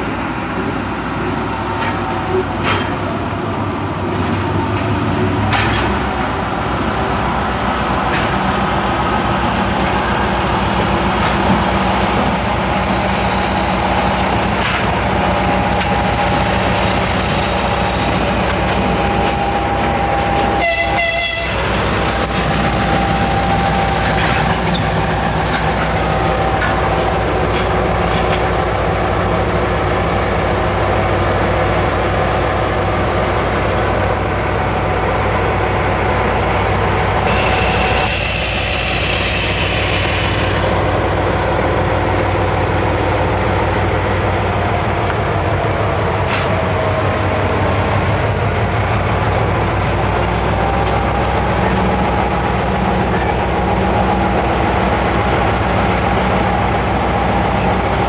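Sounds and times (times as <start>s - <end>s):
diesel locomotive engine drone: 0.0s - 58.0s
locomotive horn blast: 19.1s - 22.2s, 37.2s - 40.8s.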